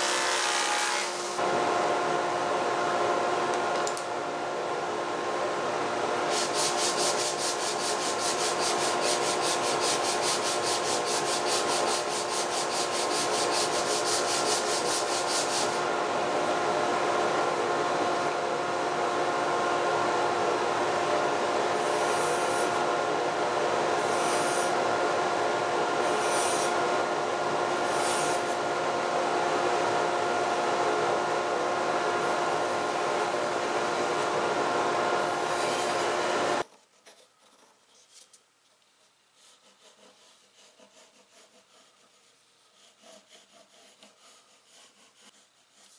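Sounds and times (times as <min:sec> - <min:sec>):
shop machine hum: 0:00.0 - 0:36.7
steel tool rubbing wood: 0:06.3 - 0:15.8, 0:21.8 - 0:22.8, 0:24.0 - 0:24.8, 0:26.0 - 0:26.8, 0:27.8 - 0:28.6, 0:35.2 - 0:36.2.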